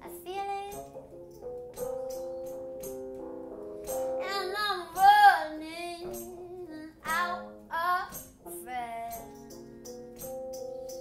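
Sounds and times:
high young voice singing: 0.0s - 0.9s, 4.2s - 9.3s
held keyboard chords: 0.0s - 11.0s.

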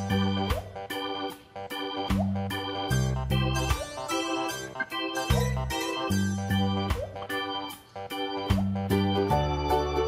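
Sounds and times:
tune over a bass line: 0.0s - 7.6s.

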